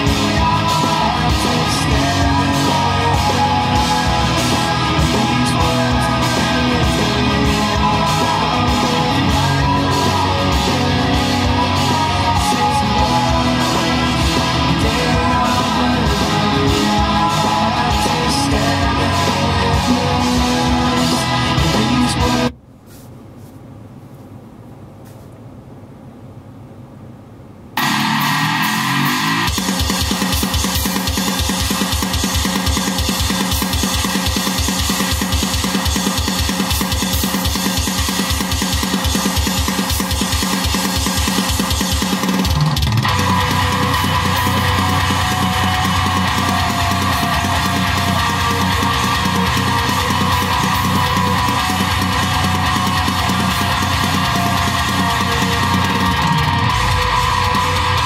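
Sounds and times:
heavy rock music through car stereo: 0:00.0 - 0:22.5, 0:27.8 - 0:58.0
rapid kick drum beat: 0:00.0 - 0:22.5, 0:29.3 - 0:58.0
guitar runs: 0:00.0 - 0:22.6, 0:27.8 - 0:58.0.

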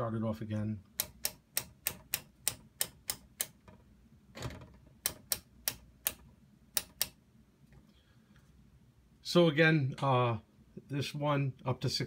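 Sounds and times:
selector switch clicking: 0:01.0 - 0:03.6, 0:05.0 - 0:07.2.

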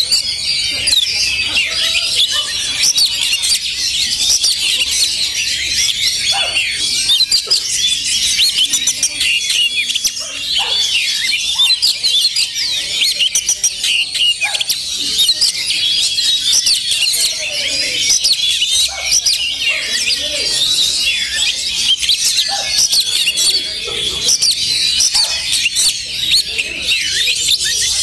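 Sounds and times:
birds singing whistles and chirps: 0:00.0 - 0:28.0.

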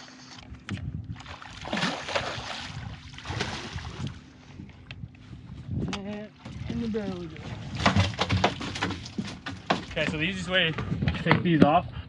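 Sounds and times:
steady low hum: 0:00.0 - 0:12.0
fish thrashing water splashing: 0:01.2 - 0:04.2, 0:07.2 - 0:10.1.

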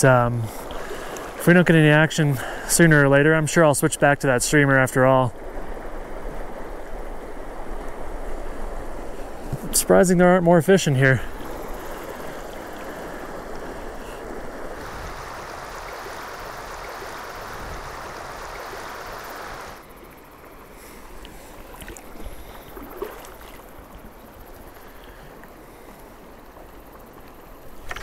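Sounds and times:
river current rushing: 0:00.0 - 0:28.0
faint ticks: 0:21.2 - 0:23.7, 0:24.4 - 0:28.0.

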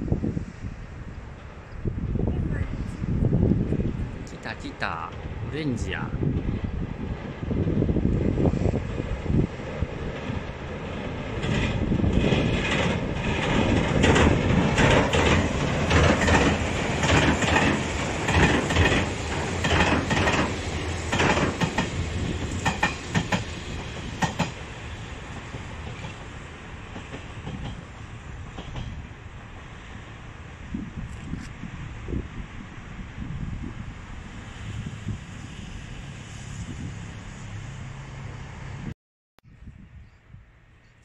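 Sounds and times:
electric train wheels clattering: 0:07.5 - 0:29.8.

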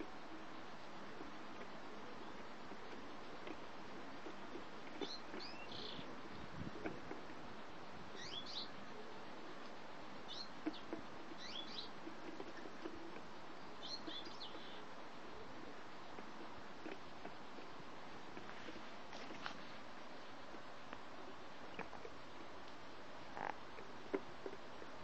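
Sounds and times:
finches chirping: 0:00.0 - 0:07.3, 0:08.1 - 0:16.9.

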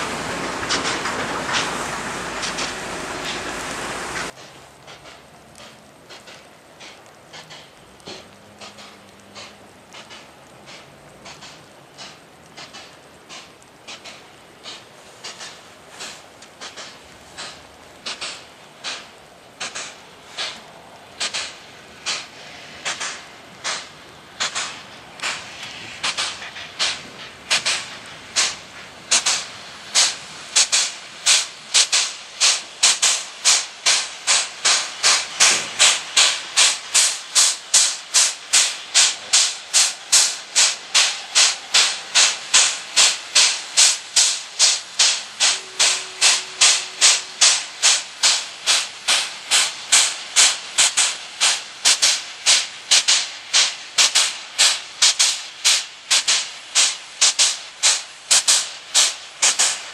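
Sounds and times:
steam locomotive chuffing: 0:00.0 - 0:59.9.

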